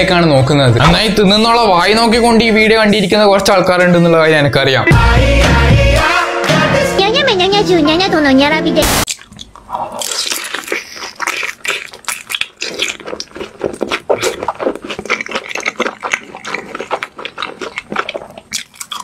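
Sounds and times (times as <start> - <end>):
wet chewing and smacking: 9.0 - 19.0.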